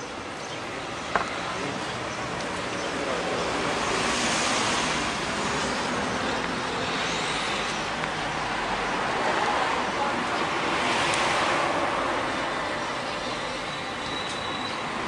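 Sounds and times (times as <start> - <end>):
car passing: 2.5 - 13.7.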